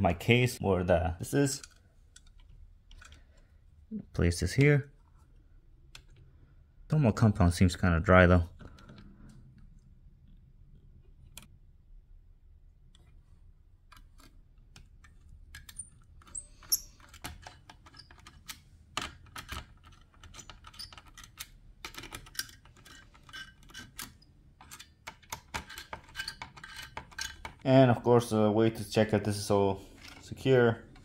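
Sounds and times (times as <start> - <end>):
small metallic clicks and taps: 1.6 - 3.5.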